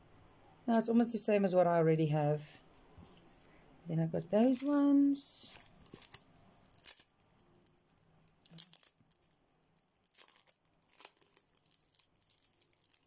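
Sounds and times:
plastic packaging crinkling: 4.2 - 13.0.

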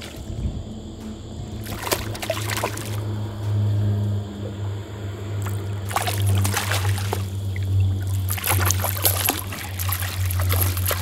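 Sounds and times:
steady low hum: 0.0 - 11.0
fish splashing at surface: 1.6 - 3.2, 5.4 - 11.0.

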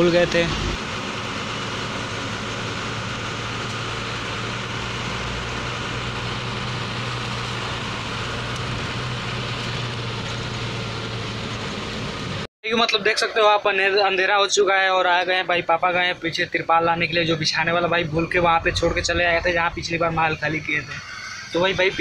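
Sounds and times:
truck engine running: 0.0 - 12.5, 15.3 - 22.0
road noise: 0.0 - 22.0.

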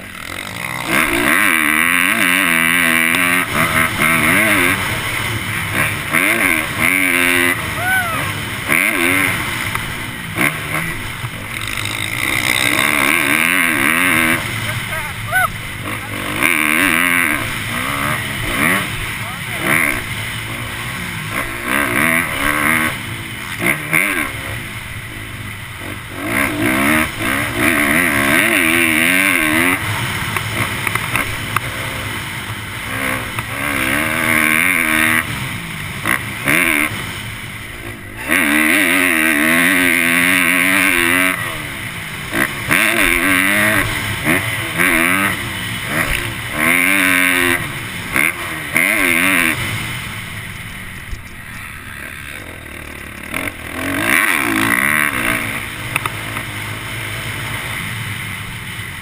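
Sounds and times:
dirt bike engine revving: 0.0 - 59.0.

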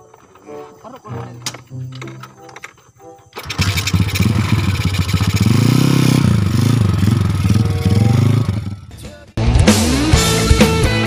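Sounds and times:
small motorcycle engine revving: 3.4 - 8.9
rock music: 7.2 - 11.0.

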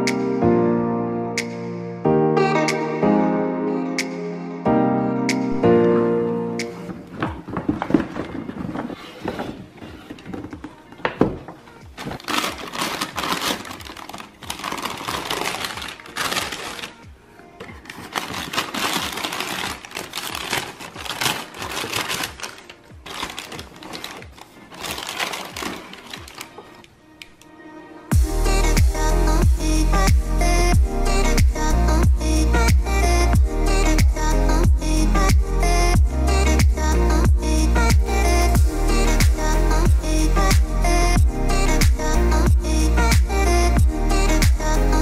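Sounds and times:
paper rustling and crinkling: 6.8 - 26.8.

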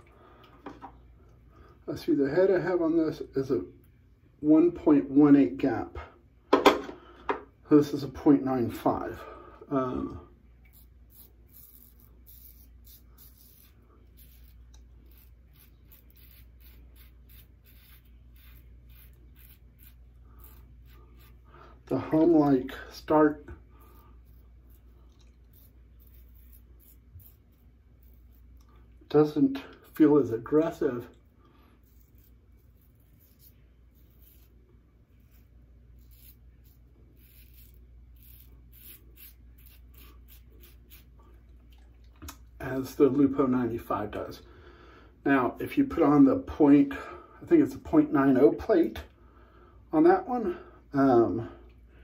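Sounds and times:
razor scraping stubble: 10.6 - 31.1, 31.8 - 41.2.

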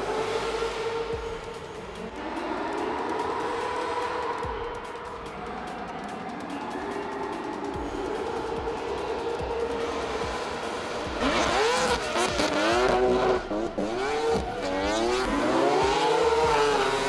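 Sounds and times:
car engines revving: 0.0 - 17.0.

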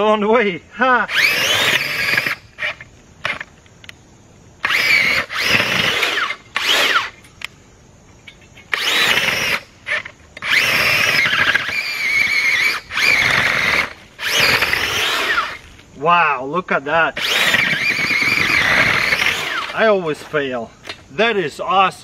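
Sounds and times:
earth auger motor whining: 1.1 - 3.5, 4.6 - 7.2, 8.7 - 15.7, 17.2 - 20.0.

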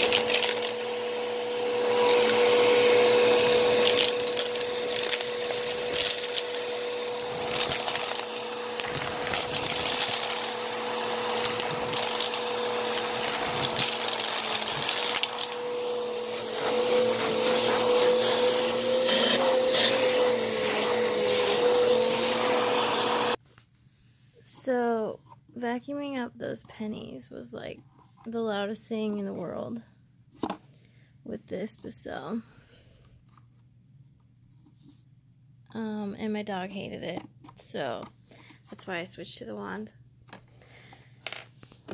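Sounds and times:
vacuum cleaner whining: 0.0 - 23.4.

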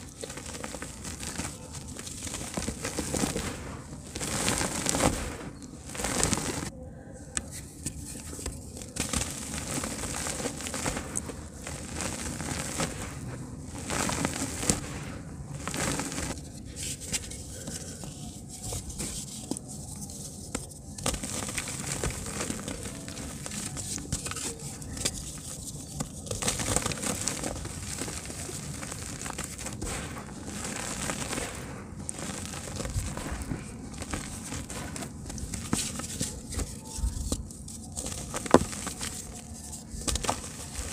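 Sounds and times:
dirt clumps crackling: 0.0 - 6.7, 8.9 - 16.4, 26.4 - 36.7, 38.0 - 40.9
dirt grains pattering: 0.0 - 6.7, 8.3 - 16.4, 17.2 - 40.9.

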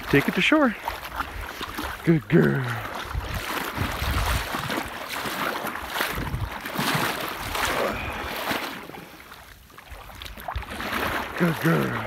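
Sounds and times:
wind rushing over microphone: 2.9 - 4.9, 6.0 - 6.6.

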